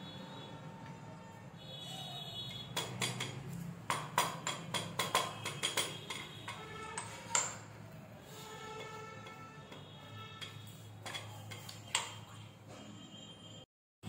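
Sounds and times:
stone pestle pounding leaves: 2.8 - 6.6.

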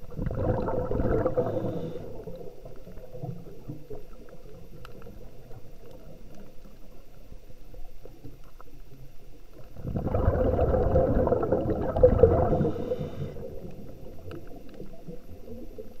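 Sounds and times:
diver's exhaled bubbles underwater: 0.0 - 16.0
small crackling clicks: 2.3 - 9.8, 13.4 - 16.0.

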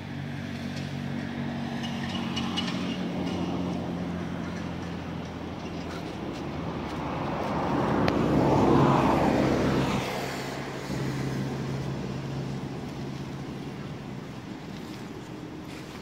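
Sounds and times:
vehicle passing by: 0.0 - 16.0.

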